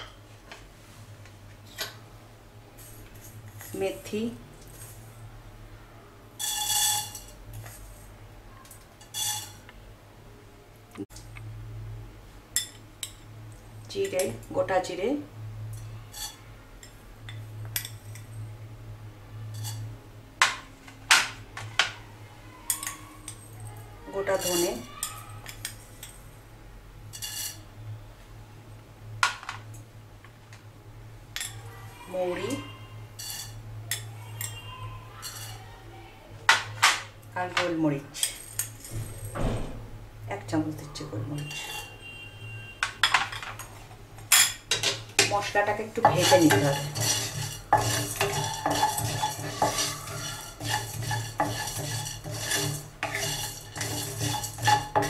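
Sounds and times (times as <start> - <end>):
metal spoon clinking on dishes: 6.4 - 7.8, 22.7 - 26.2, 33.2 - 34.6, 35.2 - 35.6, 44.3 - 55.0.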